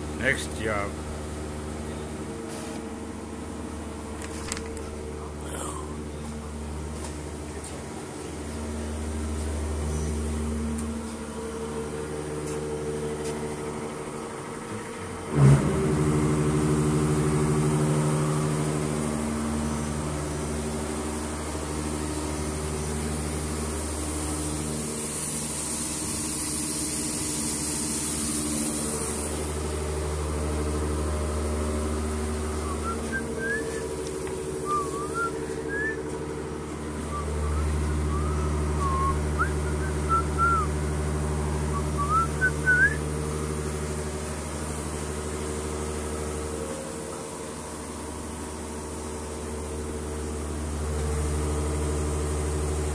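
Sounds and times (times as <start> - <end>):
machine motor hum: 0.0 - 52.9
loud hiss: 21.9 - 30.0.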